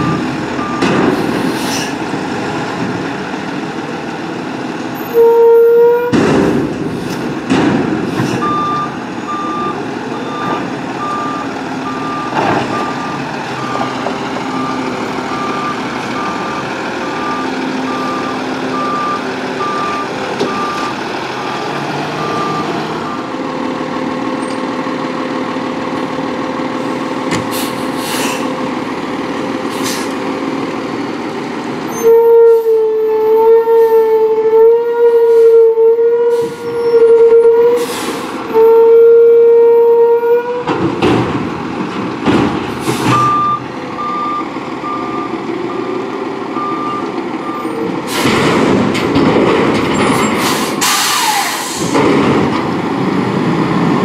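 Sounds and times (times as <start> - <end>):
reversing alarm beeps: 0.0 - 0.9, 8.4 - 16.6, 17.2 - 20.9, 43.1 - 45.9, 46.6 - 47.8
loud hiss: 50.4 - 52.0.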